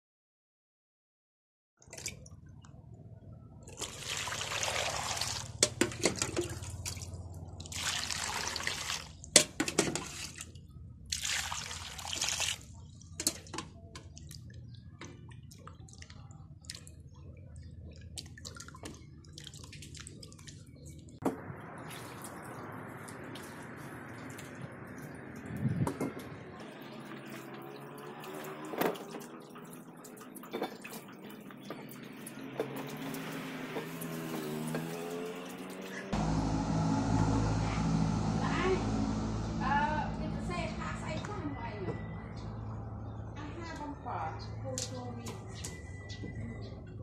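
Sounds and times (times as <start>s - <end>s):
soft steady water noise: 1.8s - 25.4s, 26.6s - 32.6s
water splashing in basin: 3.7s - 25.9s, 26.6s - 36.1s.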